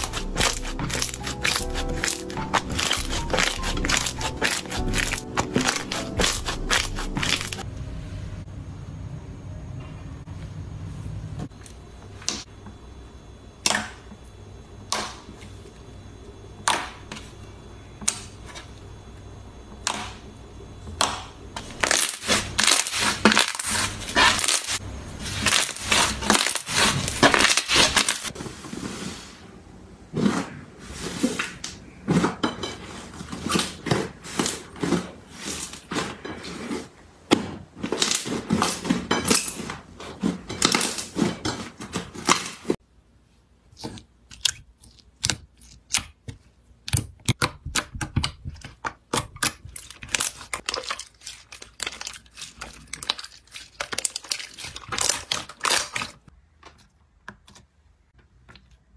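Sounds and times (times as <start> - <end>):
slime popping and crackling: 0.0 - 7.6, 21.7 - 28.3.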